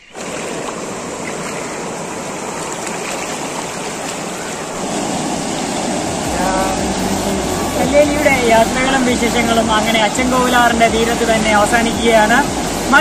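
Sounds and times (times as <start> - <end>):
river water rushing over weir: 0.0 - 13.0.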